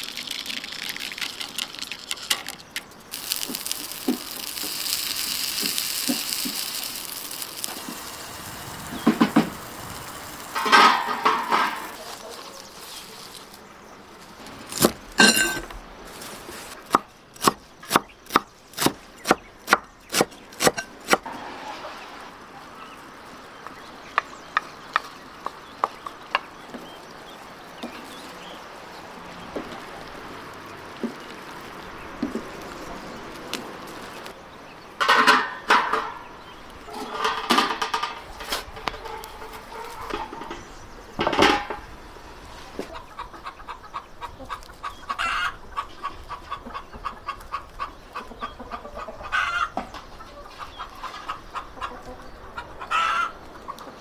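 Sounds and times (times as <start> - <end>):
wooden spoon scraping metal pan: 10.4 - 13.5
pan and lid clanking: 10.5 - 12.1, 15.2 - 15.7.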